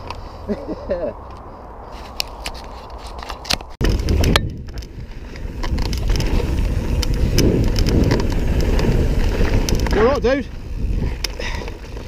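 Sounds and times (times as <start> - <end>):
wind buffeting microphone: 0.0 - 12.0
bike clicks and rattles: 0.9 - 12.0
tyres rumbling over loose stones: 2.7 - 12.0.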